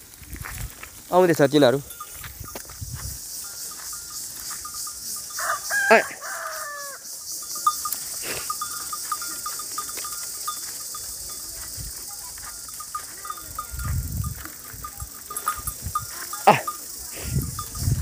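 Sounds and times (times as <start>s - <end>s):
outdoor background noise: 0.0s - 18.0s
rooster crowing: 5.2s - 7.1s.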